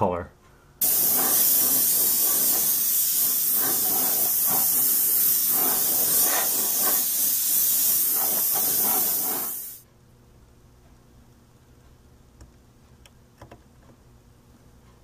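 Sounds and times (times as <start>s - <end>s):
airbrush spraying hiss: 0.8s - 9.8s.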